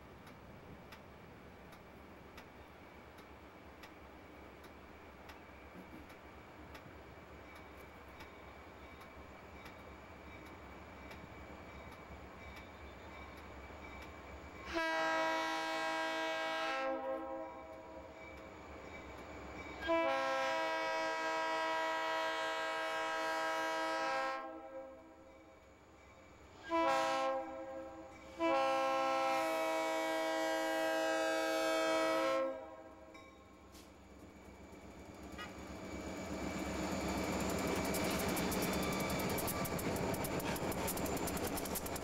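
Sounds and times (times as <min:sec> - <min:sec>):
locomotive air horn blasts: 0:14.6 - 0:18.1, 0:19.8 - 0:25.1, 0:26.6 - 0:33.1.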